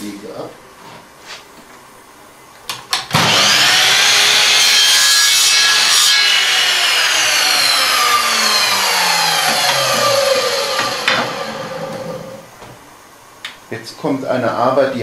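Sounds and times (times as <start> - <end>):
mitre saw cutting wood: 3.1 - 12.4.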